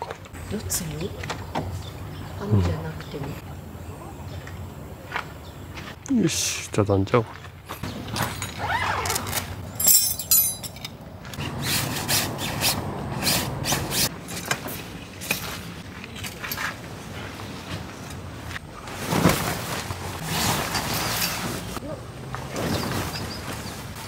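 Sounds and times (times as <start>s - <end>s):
metallic clinks of tent stakes: 9.3s - 11.0s
canvas dragging and rustling: 18.8s - 21.8s, 22.4s - 24.0s.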